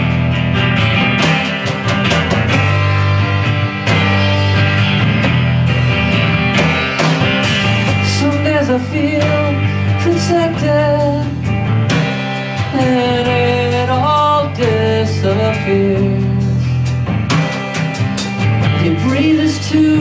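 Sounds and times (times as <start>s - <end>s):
strummed electric guitar: 0.0s - 20.0s
man singing: 7.9s - 11.5s, 12.6s - 16.7s, 18.6s - 20.0s.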